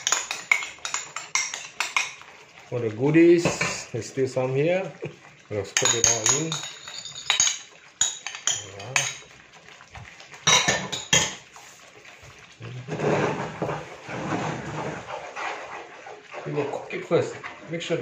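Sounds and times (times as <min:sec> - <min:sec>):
stirring thick sauce: 0:00.0 - 0:18.0.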